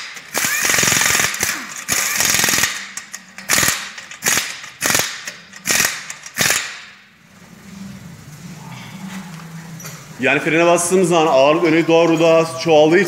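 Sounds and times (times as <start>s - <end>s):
impact wrench hammering: 0.0s - 7.0s.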